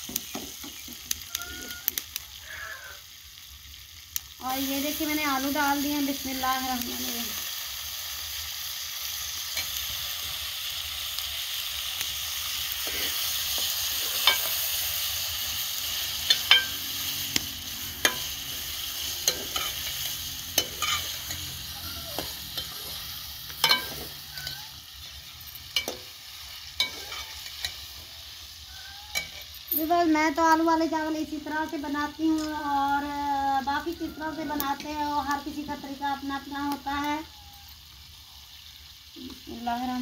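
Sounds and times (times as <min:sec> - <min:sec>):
potatoes sizzling in oil: 0:00.0 - 0:40.0
metal spoon scraping pot: 0:19.2 - 0:21.6, 0:22.2 - 0:26.1, 0:26.8 - 0:27.8, 0:29.1 - 0:29.7.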